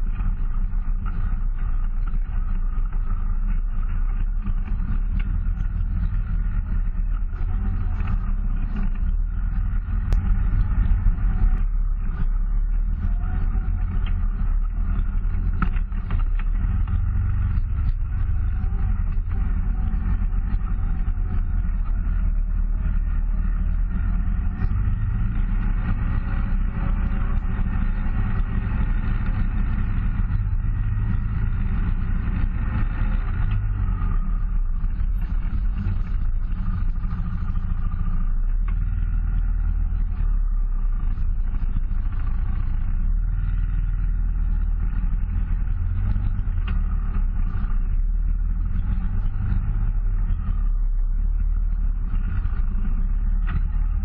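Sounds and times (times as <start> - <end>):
atv engine rumbling: 0.0 - 54.0.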